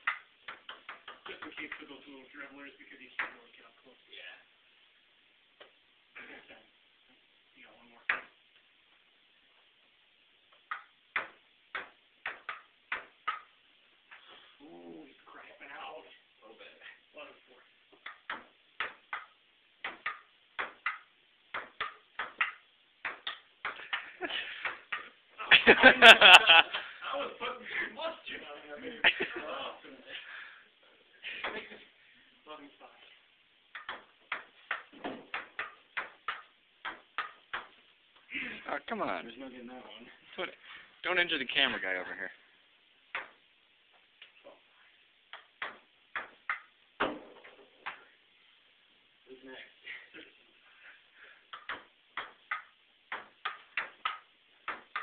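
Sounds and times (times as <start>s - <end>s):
ping-pong ball clicking: 0.0s - 1.8s, 10.5s - 13.6s, 18.0s - 24.0s, 33.7s - 37.8s, 45.3s - 46.7s, 51.5s - 55.0s.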